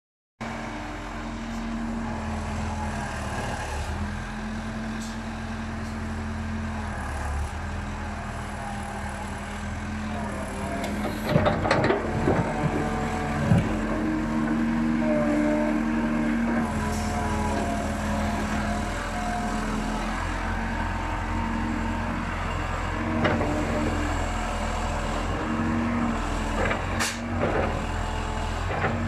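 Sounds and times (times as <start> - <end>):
diesel engine running: 0.4 - 29.0
metal clanks and knocks: 10.8 - 12.8.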